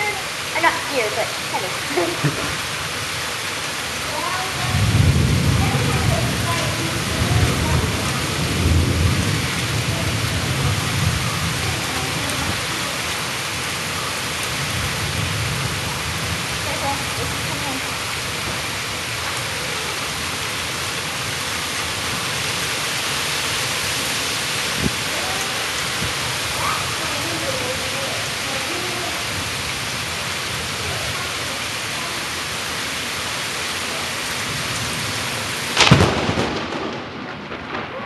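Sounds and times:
heavy rain pouring: 0:00.0 - 0:38.0
loud thunderclap: 0:04.4 - 0:12.7, 0:34.5 - 0:38.0.

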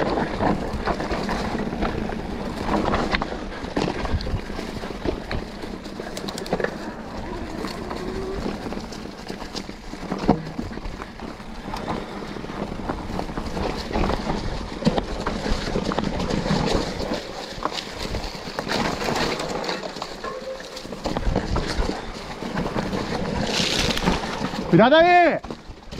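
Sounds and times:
wind buffeting microphone: 0:00.0 - 0:19.6
bike rattling and clicking: 0:00.0 - 0:25.9
tyres rolling over dirt: 0:00.0 - 0:25.9.

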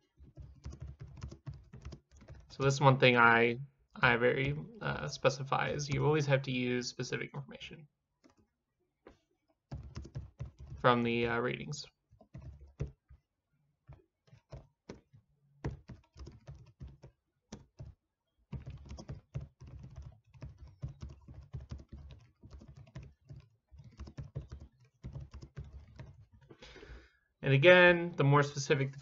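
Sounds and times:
typing on computer keyboard: 0:00.2 - 0:02.5, 0:09.7 - 0:10.8, 0:12.2 - 0:13.1, 0:14.2 - 0:26.6.

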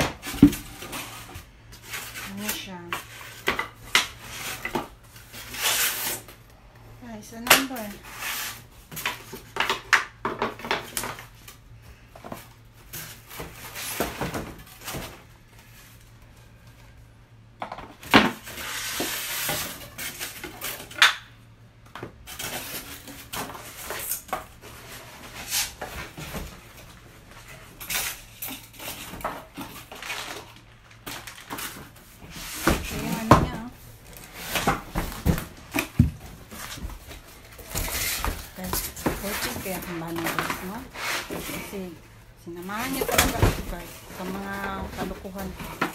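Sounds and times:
packing rustling and scraping: 0:22.3 - 0:45.9
boards knocking and clattering: 0:32.5 - 0:33.8.

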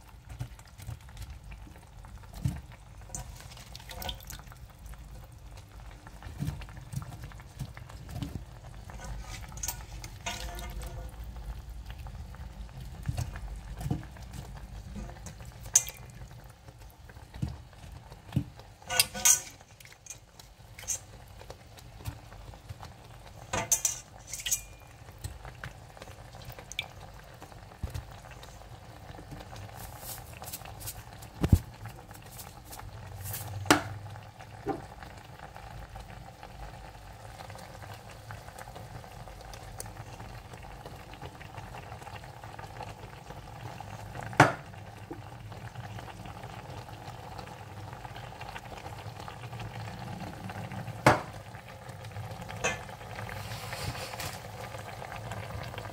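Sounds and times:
pot hissing on stove: 0:52.6 - 0:55.9.

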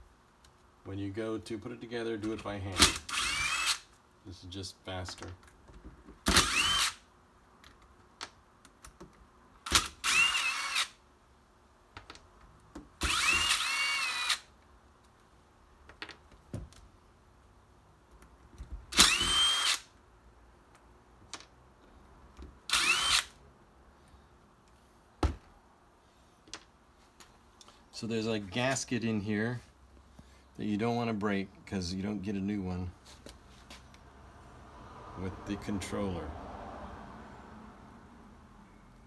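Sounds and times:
impact driver spinning: 0:02.8 - 0:03.9, 0:06.2 - 0:07.0, 0:13.0 - 0:14.5, 0:18.9 - 0:19.9, 0:22.7 - 0:23.4.

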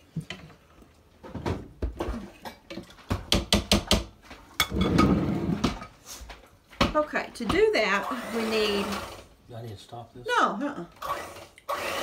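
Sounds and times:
utensils and cookware clattering: 0:01.3 - 0:06.2.

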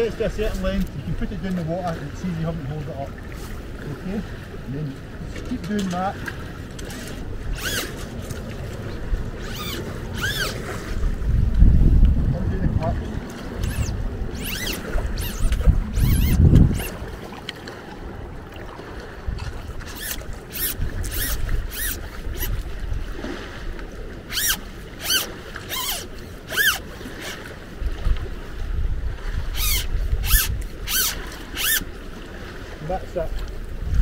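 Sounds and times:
wind rumble on microphone: 0:00.0 - 0:25.0, 0:26.9 - 0:34.0
telescopic pole sliding rasps: 0:06.8 - 0:08.5, 0:09.4 - 0:11.0, 0:13.4 - 0:17.0, 0:19.8 - 0:22.7, 0:24.3 - 0:27.5, 0:29.5 - 0:31.9.

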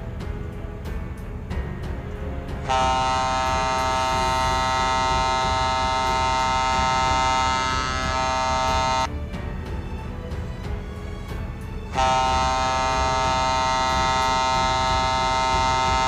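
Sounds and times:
ship's horn blast: 0:02.6 - 0:09.1, 0:11.9 - 0:16.0.

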